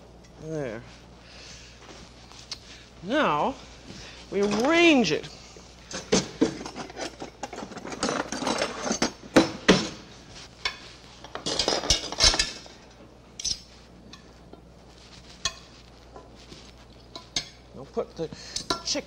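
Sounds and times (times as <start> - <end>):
utensils clinking on platter and pot: 10.6 - 14.3, 17.1 - 17.6, 18.5 - 19.0.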